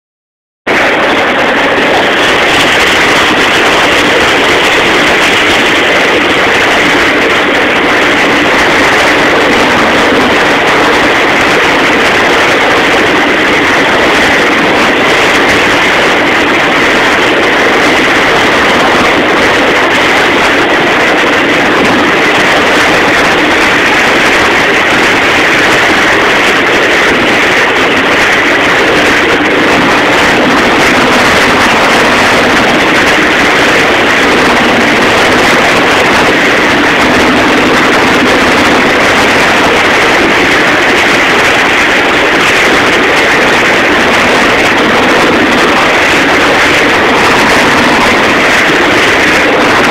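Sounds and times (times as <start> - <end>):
boat engine drone: 0.6 - 49.9
water rushing in boat wake: 0.7 - 49.9.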